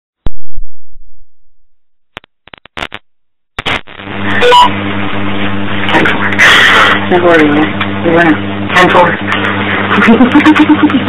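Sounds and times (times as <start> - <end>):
steady low hum with hiss: 2.8 - 11.0.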